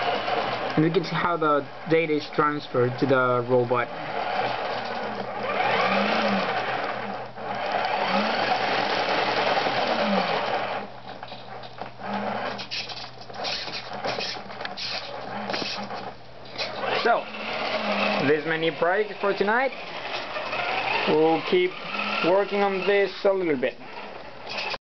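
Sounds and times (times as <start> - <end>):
electric motor and gears whirring: 0.0 - 24.8
irregular clicks: 4.4 - 16.9.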